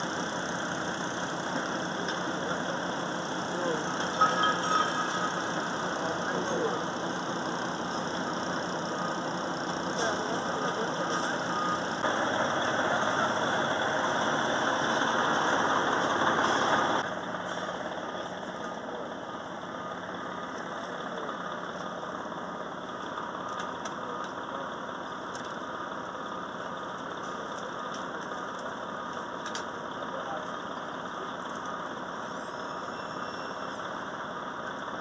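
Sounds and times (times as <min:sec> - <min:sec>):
vehicle engines idling: 0:00.0 - 0:35.0.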